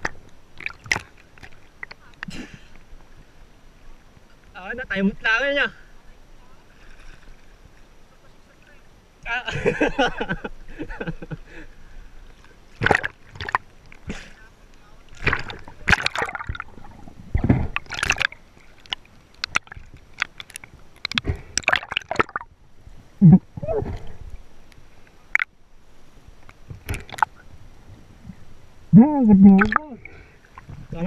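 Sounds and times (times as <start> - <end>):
underwater knocks and gurgles: 0.0 - 2.3, 12.8 - 14.1, 15.2 - 22.5, 26.5 - 27.4, 29.5 - 29.8
water splashing and bubbling: 0.0 - 3.3, 12.2 - 14.2, 15.0 - 25.6, 26.4 - 27.6, 28.2 - 31.0.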